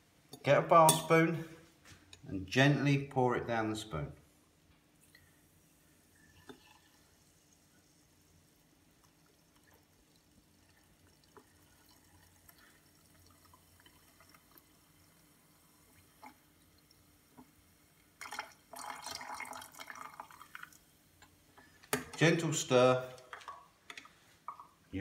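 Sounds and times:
liquid pouring into glass: 0:06.2 - 0:07.2, 0:08.9 - 0:17.0, 0:18.2 - 0:20.8
drips: 0:09.0 - 0:20.8.

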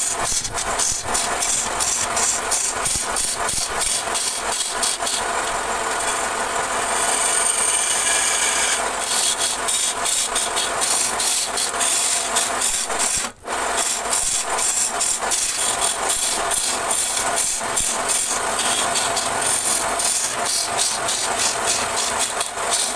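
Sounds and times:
lathe tool scraping wood: 0:00.0 - 0:22.9.

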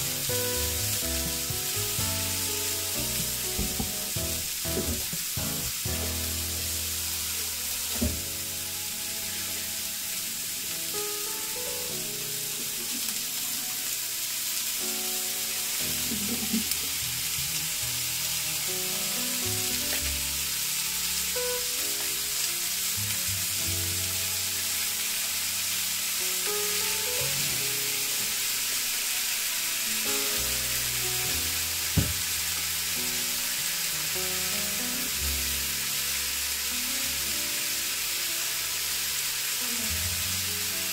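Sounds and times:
onion sizzling in a frying pan: 0:00.0 - 0:40.9
quiet background music: 0:00.0 - 0:40.9
scallops knocking into pan: 0:03.5 - 0:05.6, 0:32.0 - 0:32.3.

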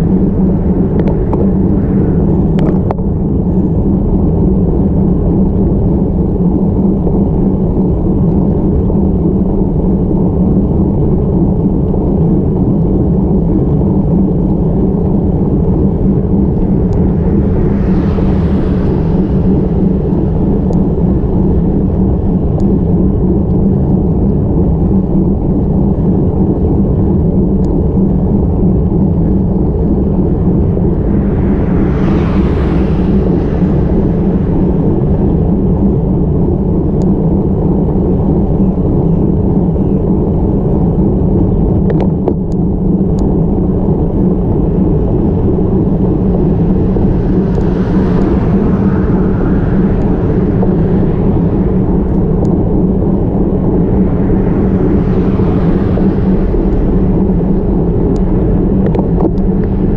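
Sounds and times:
vehicles passing: 0:00.0 - 0:04.1, 0:15.2 - 0:23.1, 0:29.3 - 0:36.8, 0:44.2 - 0:59.9
road noise: 0:00.0 - 0:06.5, 0:09.8 - 0:24.6, 0:27.4 - 0:39.6, 0:42.9 - 0:59.9
wind buffeting microphone: 0:00.0 - 0:59.9.

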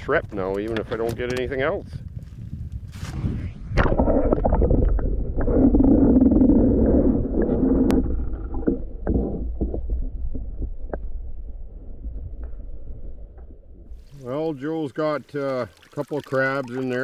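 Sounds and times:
underwater gurgling and rumbling: 0:03.2 - 0:14.5.

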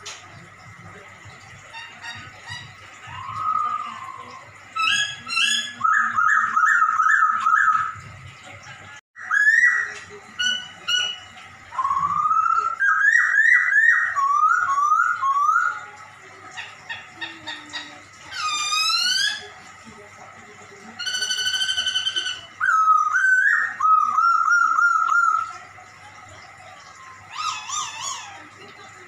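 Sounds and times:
bird singing whistled phrases: 0:03.1 - 0:08.0, 0:09.2 - 0:15.8, 0:21.0 - 0:25.5.

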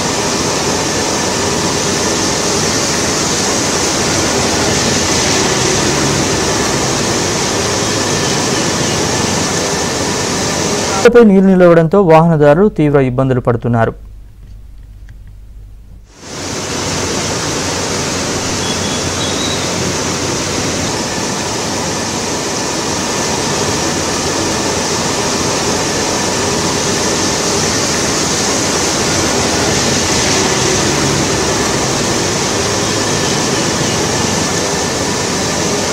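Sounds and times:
floodwater rushing: 0:00.0 - 0:11.0, 0:16.1 - 0:35.9.

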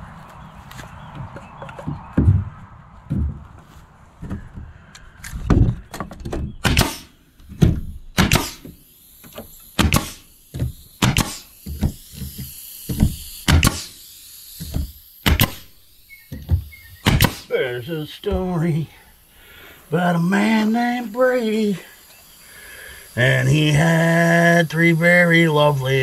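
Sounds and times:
nail gun firing into wood: 0:05.4 - 0:17.5.

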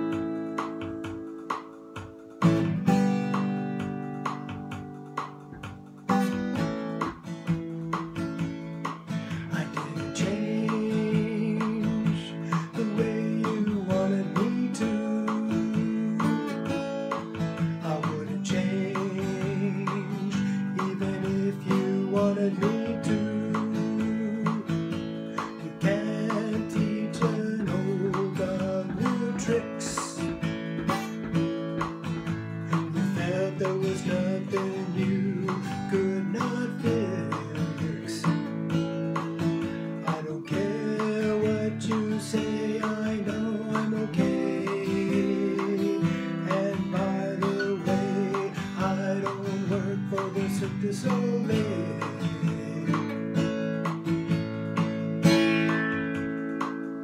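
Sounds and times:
strummed acoustic guitar: 0:00.0 - 0:57.0
man singing: 0:09.0 - 0:54.0.

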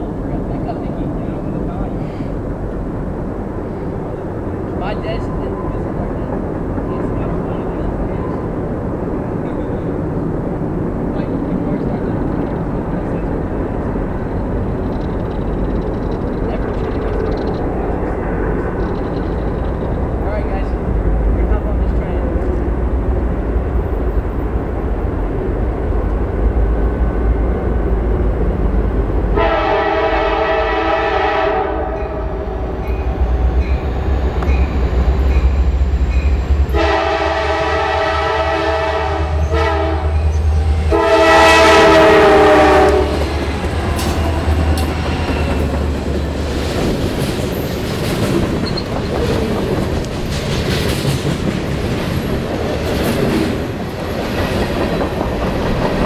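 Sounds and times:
train wheels clattering on rails: 0:00.0 - 0:25.2, 0:42.1 - 0:56.0
locomotive engine rumble: 0:00.0 - 0:56.0
train horn blasts: 0:29.4 - 0:33.0, 0:36.2 - 0:43.3.

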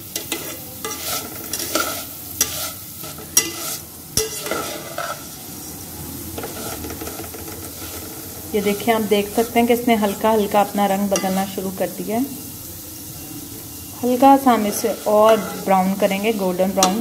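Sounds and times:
light sizzle: 0:00.0 - 0:17.0
spatula scraping metal pan: 0:00.1 - 0:05.4, 0:06.4 - 0:11.6, 0:14.0 - 0:17.0
spatula clicking on pan: 0:04.2 - 0:05.2, 0:16.8 - 0:17.0.

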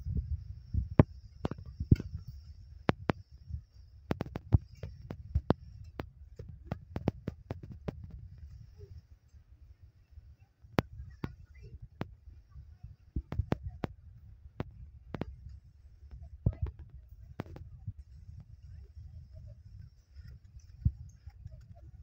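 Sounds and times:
low hum of machinery: 0:00.0 - 0:22.0
sharp clicks and knocks: 0:00.9 - 0:08.6, 0:13.2 - 0:14.0, 0:14.6 - 0:17.7.

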